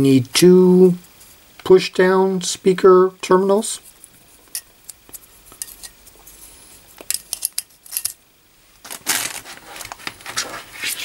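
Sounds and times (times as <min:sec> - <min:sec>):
handling rustle: 0:08.8 - 0:11.0.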